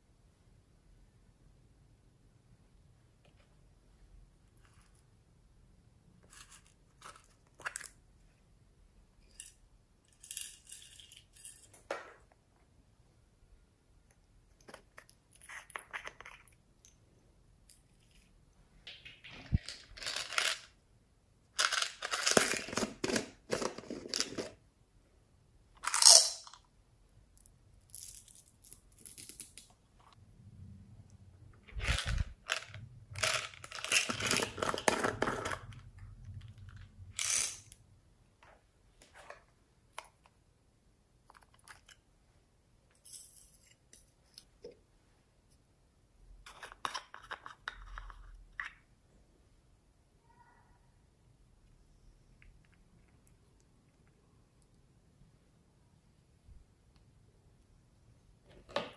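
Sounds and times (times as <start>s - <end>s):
plastic lids clicking and scraping: 21.6s - 24.6s, 46.4s - 48.8s.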